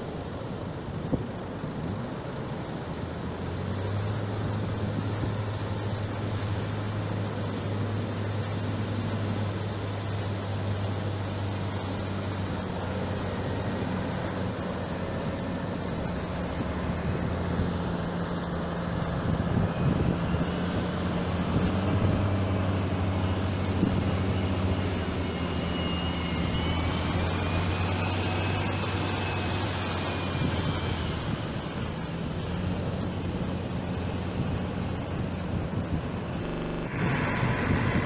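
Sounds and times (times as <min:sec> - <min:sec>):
low engine hum: 0:00.0 - 0:38.0
breaking surf: 0:35.9 - 0:38.0.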